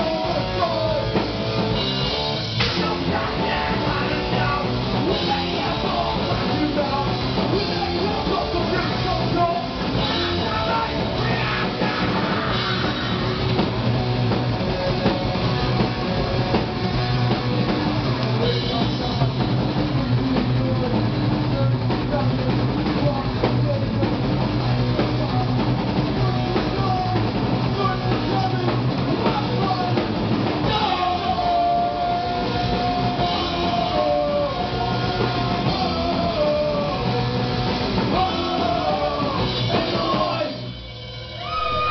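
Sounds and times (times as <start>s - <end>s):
drum kit: 0.0s - 41.9s
electric guitar: 0.0s - 41.9s
person singing into microphone: 2.6s - 13.5s, 26.2s - 40.6s.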